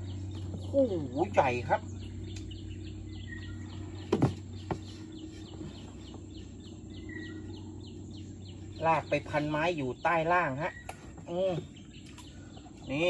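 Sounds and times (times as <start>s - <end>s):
birds chirping: 0.0s - 13.0s
steady low hum: 0.0s - 13.0s.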